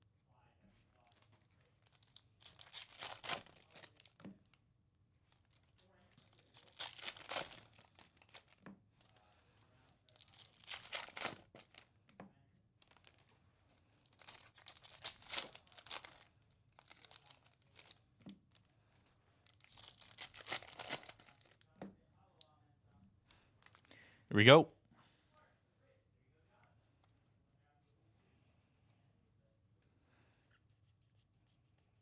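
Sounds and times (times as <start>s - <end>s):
foil wrapper crinkling and tearing: 1.0s - 4.2s, 5.3s - 9.2s, 10.1s - 11.9s, 12.8s - 18.7s, 19.4s - 21.7s, 23.6s - 23.9s.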